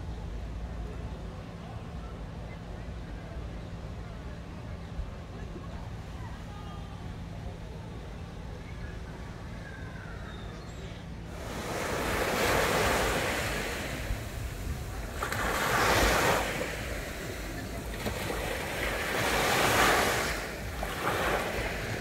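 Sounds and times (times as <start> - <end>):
sea waves washing onto shore: 11.3 - 22.0.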